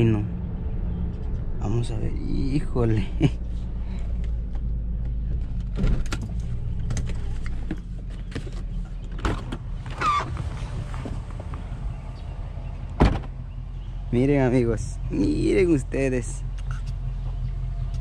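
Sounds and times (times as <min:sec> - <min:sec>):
car engine running inside cabin: 0:00.0 - 0:18.0
car door squeak: 0:08.3 - 0:11.2.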